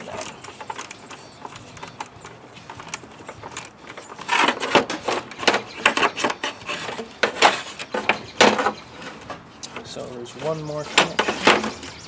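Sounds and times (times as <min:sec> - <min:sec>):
plastic fan scraping and knocking: 0:00.0 - 0:12.0.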